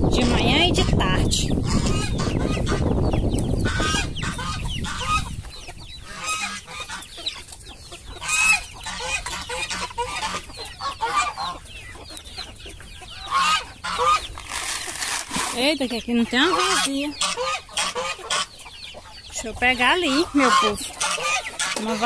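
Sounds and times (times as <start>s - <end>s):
wind rumbling on microphone: 0.0s - 17.2s
chickens clucking: 0.0s - 22.0s.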